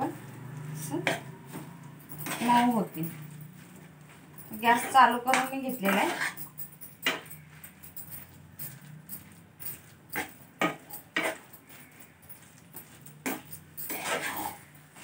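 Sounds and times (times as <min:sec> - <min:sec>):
steel spoon scraping a pan: 0:04.7 - 0:07.5, 0:10.2 - 0:12.5, 0:13.2 - 0:14.8.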